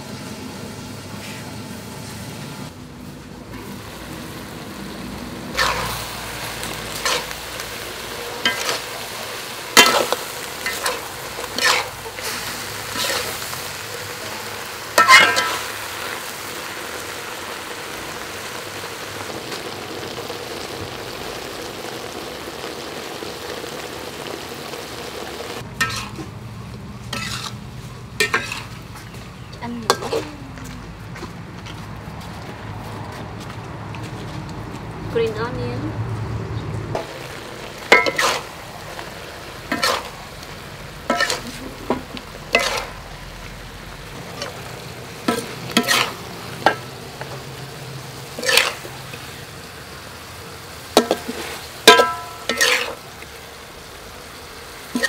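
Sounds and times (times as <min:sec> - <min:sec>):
food sizzling in hot oil: 0:00.0 - 0:30.5, 0:36.9 - 0:55.0
metal spatula scraping a wok: 0:01.1 - 0:02.4, 0:05.4 - 0:15.9, 0:25.8 - 0:26.4, 0:27.0 - 0:29.0, 0:29.9 - 0:30.3, 0:37.9 - 0:40.4, 0:41.0 - 0:43.1, 0:44.2 - 0:46.9, 0:48.3 - 0:49.3, 0:51.0 - 0:53.1.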